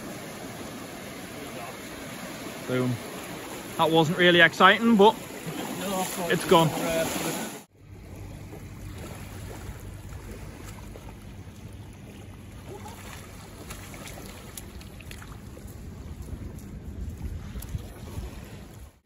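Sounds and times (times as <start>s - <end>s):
small waves washing on shore: 0.0s - 19.0s
wind buffeting microphone: 14.7s - 19.0s.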